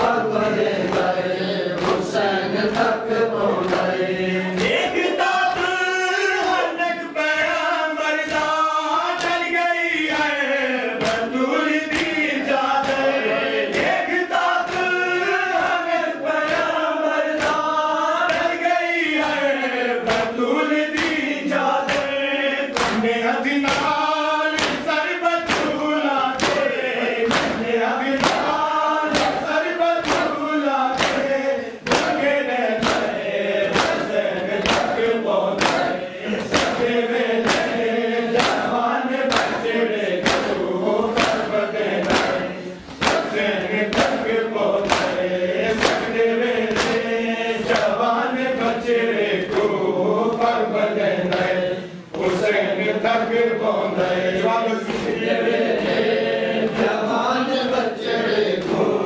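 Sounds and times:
men chanting in unison: 0:00.0 - 0:59.0
palms slapping chests: 0:20.9 - 0:50.6.

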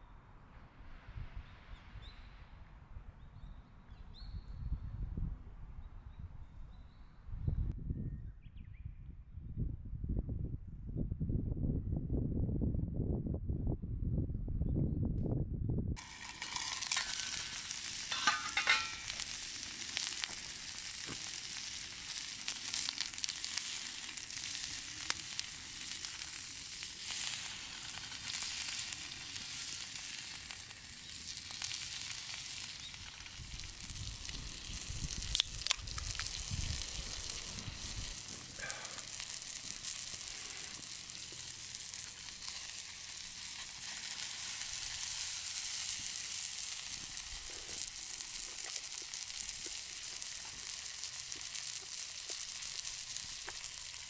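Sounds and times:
skewers sizzling on grill: 0:16.0 - 0:54.0
sharp pops: 0:32.6 - 0:42.9.

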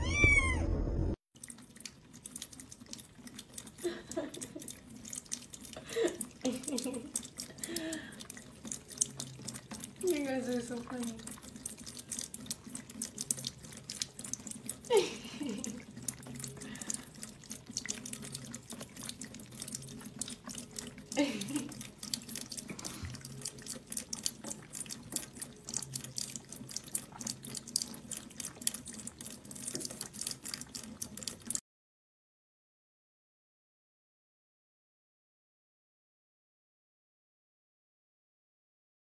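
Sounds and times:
cats lapping water: 0:01.3 - 0:31.6.

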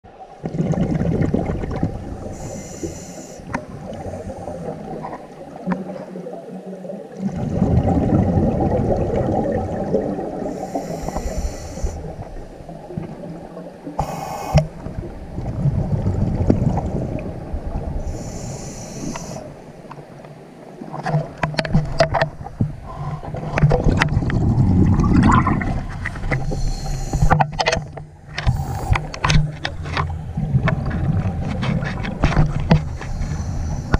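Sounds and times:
gurgling exhaled bubbles: 0:00.4 - 0:02.6, 0:03.6 - 0:18.2, 0:22.9 - 0:26.9
hissing regulator inhale: 0:02.3 - 0:04.7, 0:10.4 - 0:12.3, 0:14.0 - 0:14.8, 0:18.0 - 0:19.6, 0:26.4 - 0:27.4, 0:28.4 - 0:29.2, 0:33.0 - 0:33.9
clicks and knocks of dive gear: 0:19.9 - 0:24.4, 0:27.2 - 0:33.3.

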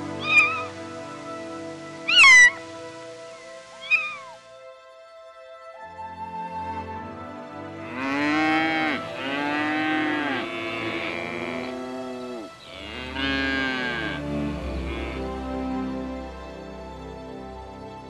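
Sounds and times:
cow mooing: 0:07.9 - 0:15.3.

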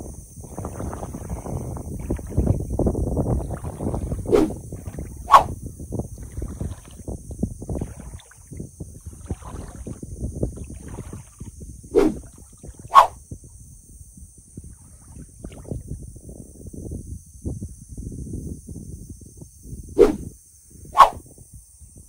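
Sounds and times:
wind buffeting microphone: 0:00.0 - 0:22.0
kayak gliding through water: 0:00.5 - 0:05.3, 0:06.0 - 0:12.9, 0:14.7 - 0:15.8.

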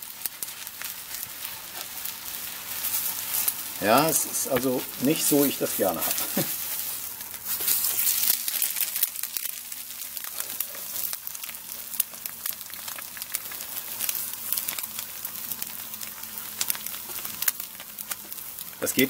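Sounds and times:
eggs sizzling on a griddle: 0:00.0 - 0:19.0.

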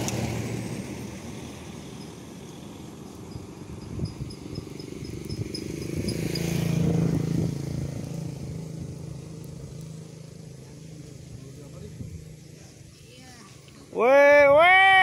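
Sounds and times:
vehicle engine passing: 0:00.0 - 0:14.0
rapid high chirps: 0:03.2 - 0:06.7.

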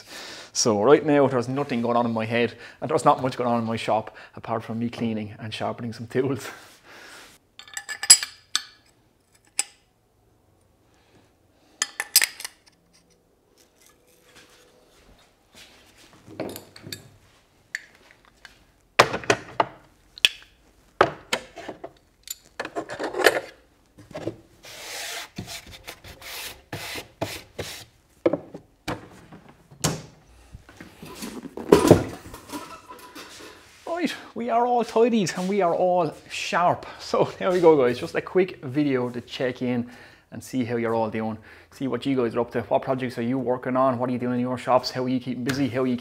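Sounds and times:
clicks and knocks of wood and metal: 0:16.3 - 0:24.4.

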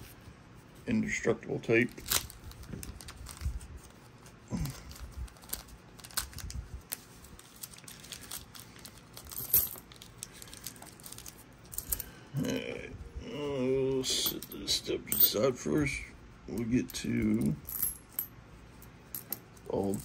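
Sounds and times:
plastic bags crinkling: 0:01.9 - 0:03.7, 0:04.5 - 0:11.4
coins clinking onto a mat: 0:07.4 - 0:12.2, 0:14.2 - 0:15.4, 0:16.6 - 0:18.3, 0:19.1 - 0:20.0.

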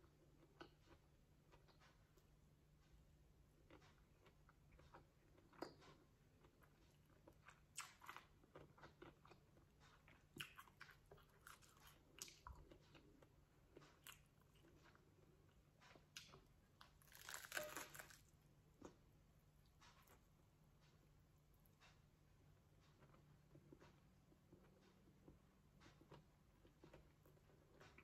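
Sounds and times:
person chewing crunchy food: 0:03.5 - 0:19.0.

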